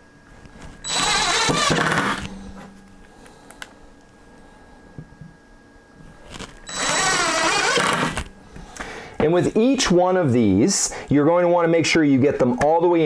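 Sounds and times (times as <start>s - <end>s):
cordless power driver running: 0.9s - 2.4s, 6.6s - 8.4s.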